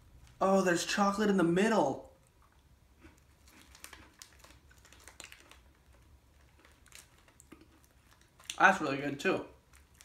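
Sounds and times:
plastic wrapper crinkling: 2.2s - 10.0s.

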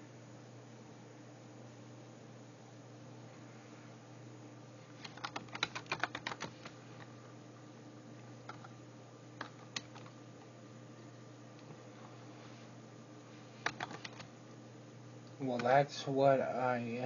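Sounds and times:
computer keyboard typing: 5.0s - 6.8s, 8.4s - 8.7s, 9.4s - 10.2s, 13.6s - 14.3s.

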